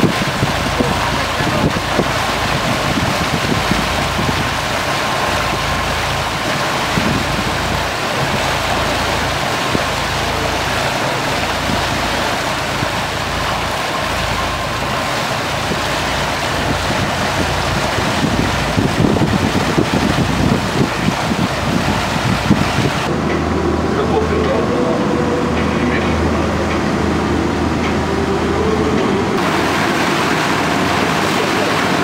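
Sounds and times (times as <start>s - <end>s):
boat engine running: 0.0s - 32.0s
water rushing in the wake: 0.0s - 32.0s.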